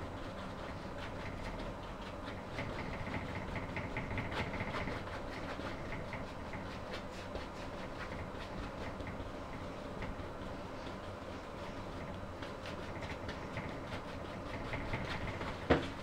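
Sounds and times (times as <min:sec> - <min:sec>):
steady low hum: 0:00.0 - 0:16.0
paintbrush tapping on canvas: 0:12.5 - 0:16.0.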